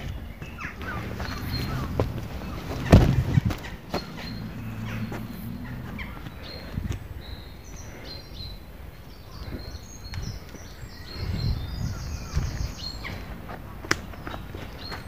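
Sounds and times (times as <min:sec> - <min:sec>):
footsteps on leafy dirt path: 0:00.0 - 0:08.0, 0:12.0 - 0:15.0
small birds chirping: 0:00.0 - 0:15.0.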